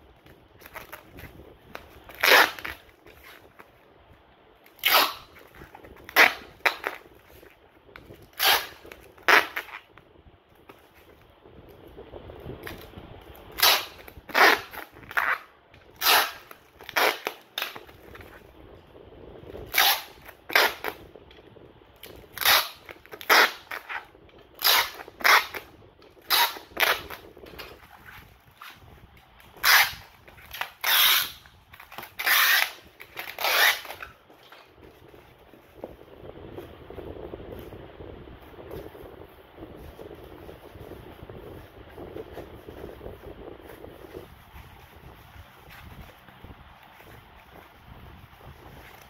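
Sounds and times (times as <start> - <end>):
packing tape ripping off roll: 0.2 - 3.8, 4.6 - 10.0, 10.6 - 18.5, 19.5 - 21.4, 22.0 - 36.0.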